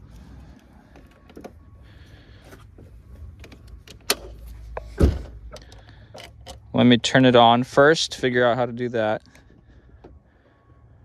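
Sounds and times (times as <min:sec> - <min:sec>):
loud thump: 0:04.9 - 0:05.4.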